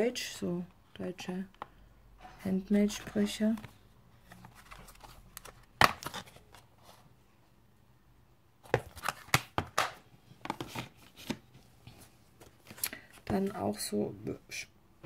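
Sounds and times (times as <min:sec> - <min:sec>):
plastic cases clacking: 0:08.7 - 0:11.4.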